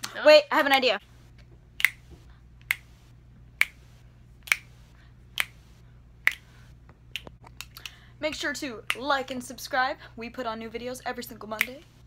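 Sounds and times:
fingers snapping: 1.8 - 2.0, 2.6 - 2.9, 3.6 - 3.8, 4.4 - 4.7, 5.3 - 5.6, 6.2 - 6.5, 7.1 - 8.0.

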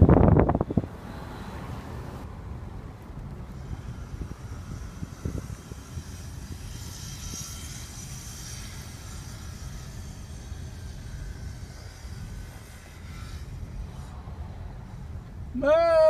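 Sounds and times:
engine and tyre rumble in car: 0.0 - 16.0.

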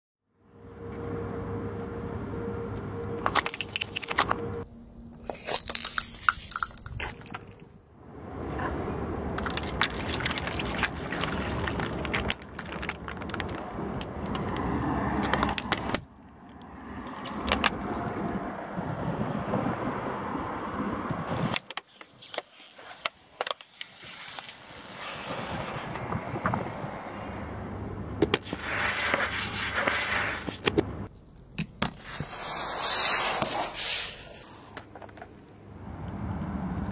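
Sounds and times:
squeeze tube being flattened: 3.2 - 4.4, 9.4 - 16.0
plastic cups crackling and bursting: 3.3 - 4.4, 5.2 - 7.6, 9.4 - 16.0
egg carton cracking: 9.4 - 16.0.

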